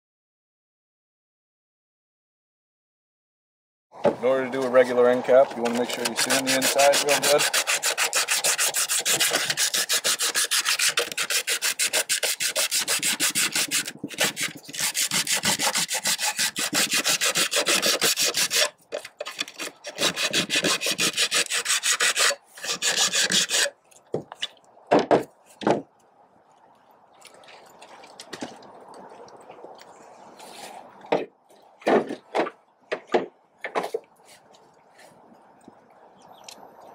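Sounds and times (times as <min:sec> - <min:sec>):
sandpaper scuffing fiberglass: 0:05.6 - 0:23.7
knocks: 0:24.9 - 0:25.9, 0:31.1 - 0:34.0.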